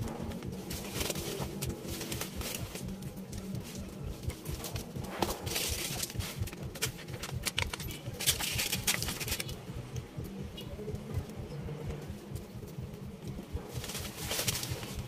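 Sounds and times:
foil and paper wrappers crinkling: 0.0 - 9.5, 13.7 - 15.0.

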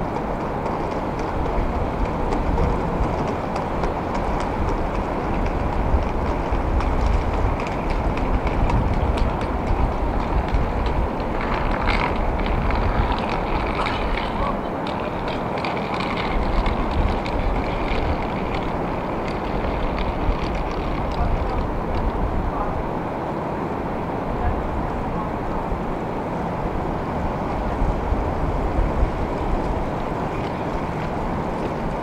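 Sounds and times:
ocean surf rushing: 0.0 - 32.0
wind buffeting microphone: 0.0 - 32.0.

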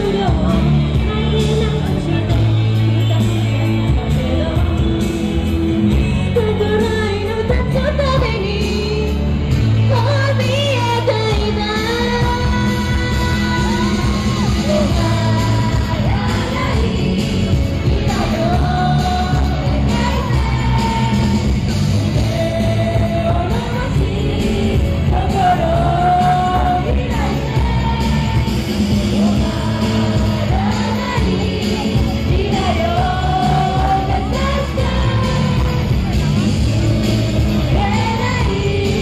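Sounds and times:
women singing: 0.0 - 3.3, 3.9 - 9.2, 9.8 - 39.0
drums: 0.0 - 39.0.

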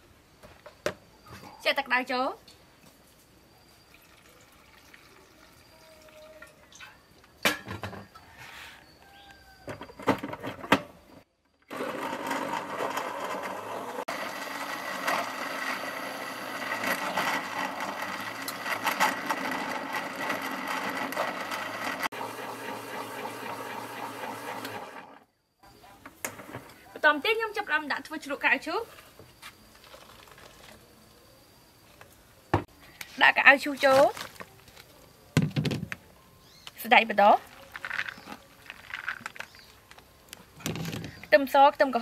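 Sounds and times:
electric blender running: 11.7 - 25.2.

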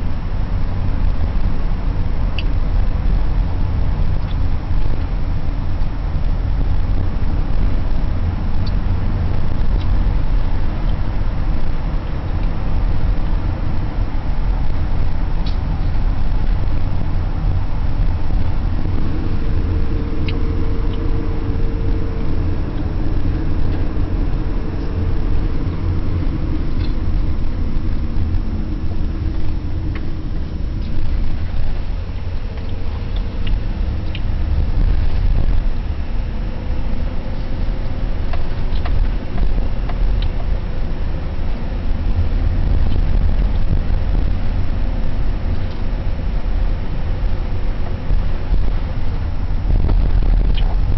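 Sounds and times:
car engine and tyre noise: 0.0 - 50.9
light ticks: 4.2 - 4.4.

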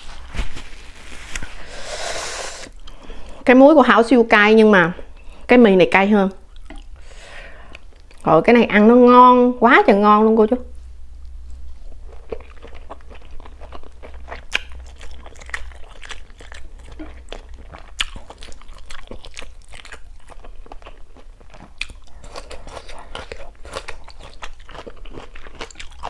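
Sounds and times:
chewing with crunchy bites: 6.5 - 7.0, 11.8 - 26.0.

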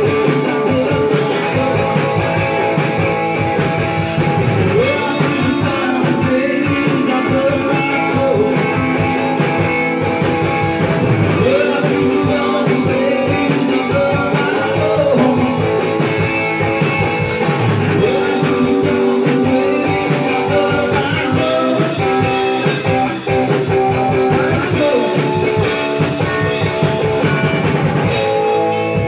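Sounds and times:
distorted electric guitar: 0.0 - 29.0
drum kit: 0.0 - 29.0.

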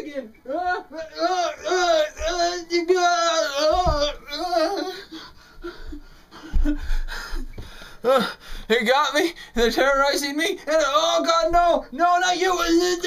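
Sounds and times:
man singing in falsetto: 0.2 - 5.1
soft thump: 3.7 - 4.2.

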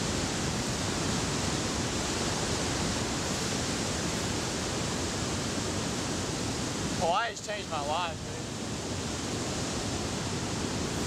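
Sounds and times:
ocean surf breaking: 6.8 - 11.0.

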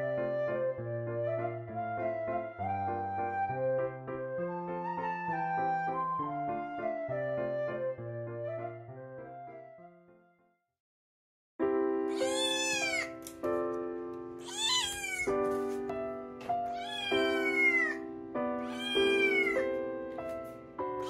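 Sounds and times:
kitten meowing: 12.1 - 13.3, 14.4 - 15.4, 16.6 - 18.0, 18.6 - 19.8.

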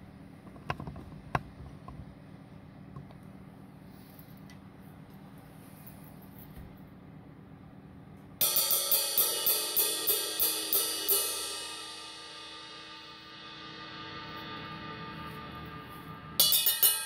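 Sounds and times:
ride cymbal struck with drumstick: 8.4 - 17.0.

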